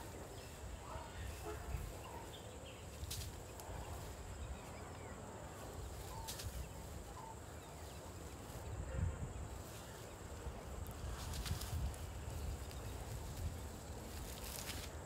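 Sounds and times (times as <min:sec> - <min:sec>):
faint bird chirps: 0:00.0 - 0:10.2
elephant trunk tearing dry grass: 0:03.0 - 0:04.2, 0:09.6 - 0:15.0.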